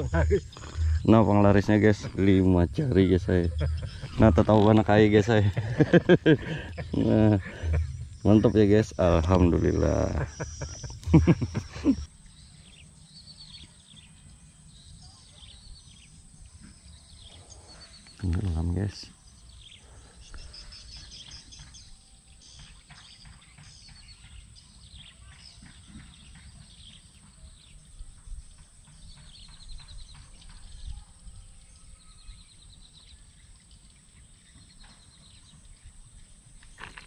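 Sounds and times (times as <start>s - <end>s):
steady high hiss: 0.0s - 13.1s
small birds chirping and trilling: 0.0s - 37.0s.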